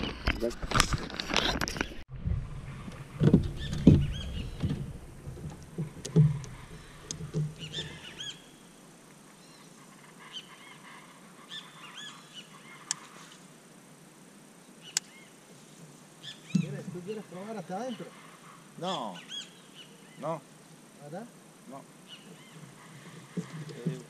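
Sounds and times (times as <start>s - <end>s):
birds chirping: 1.7s - 13.5s, 14.6s - 24.0s
low knocks: 2.1s - 8.0s.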